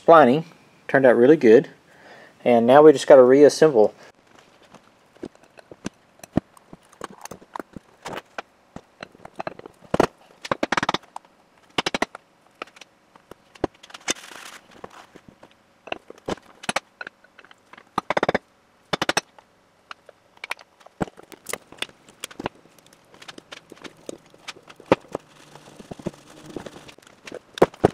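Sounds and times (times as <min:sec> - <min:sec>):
metal parts clicking and clattering: 0:09.0 - 0:12.9, 0:15.8 - 0:27.9.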